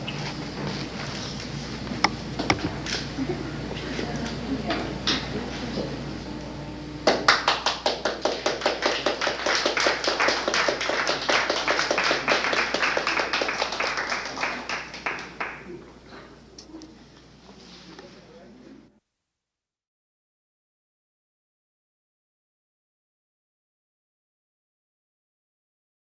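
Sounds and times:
audience applauding: 7.0s - 16.0s.

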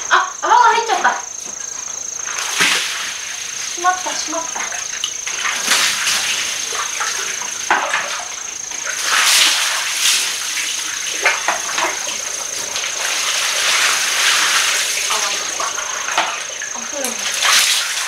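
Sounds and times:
water splashing on tiled floor: 2.2s - 18.0s
water poured from a basin: 5.0s - 18.0s.

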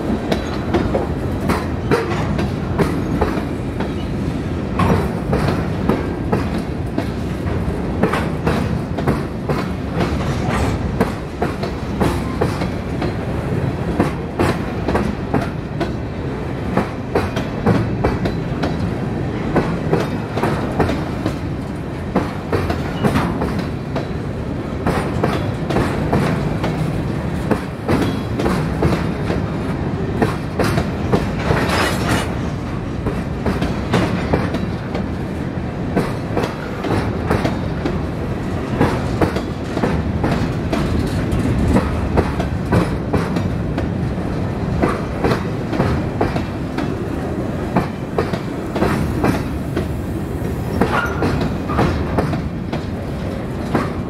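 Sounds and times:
freight train rumbling past: 0.0s - 54.0s
wheels clicking over rail joints: 36.0s - 54.0s.

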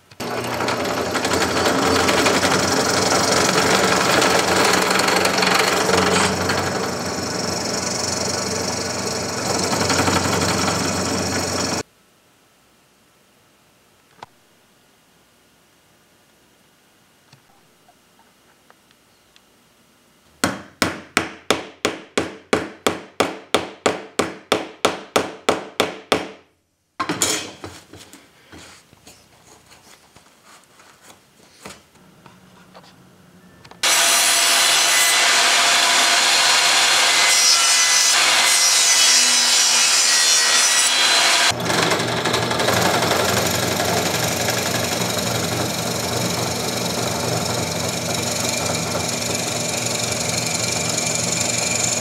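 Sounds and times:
drill press boring into wood: 0.1s - 11.8s, 41.0s - 52.0s
table saw running: 0.2s - 11.8s, 33.8s - 52.0s.

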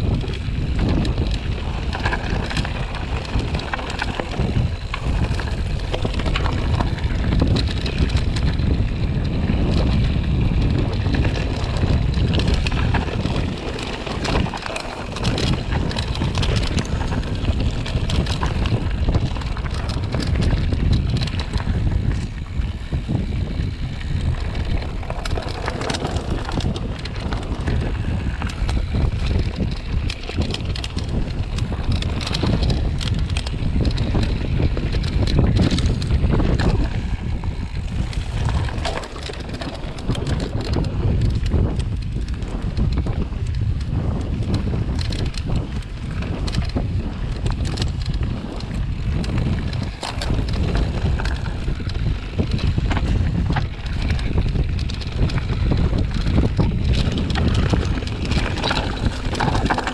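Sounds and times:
clicks and rattles: 0.0s - 59.9s
wind buffeting microphone: 0.0s - 59.9s.

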